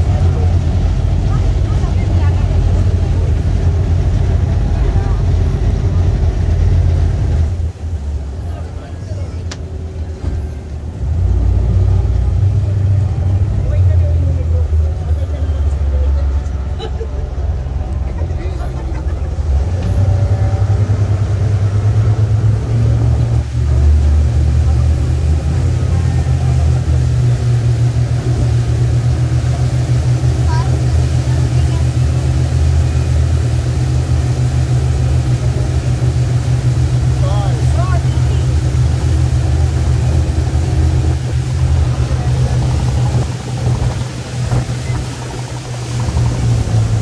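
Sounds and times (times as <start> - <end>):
boat engine droning: 0.0 - 47.0.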